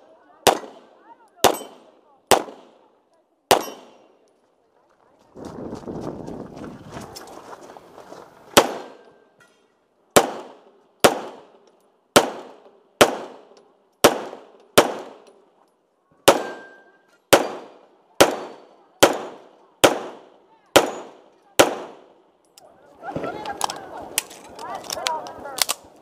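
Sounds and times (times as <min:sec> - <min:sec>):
pistol shots with echo: 0:00.4 - 0:02.9, 0:03.5 - 0:04.2, 0:08.6 - 0:09.2, 0:10.2 - 0:15.4, 0:16.2 - 0:22.2.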